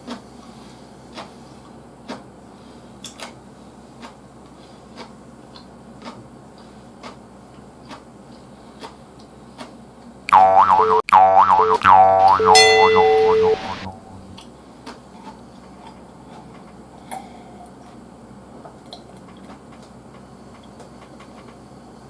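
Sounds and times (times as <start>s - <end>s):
bright jingle with gliding tones: 10.3s - 14.4s
room hum: 10.3s - 14.7s.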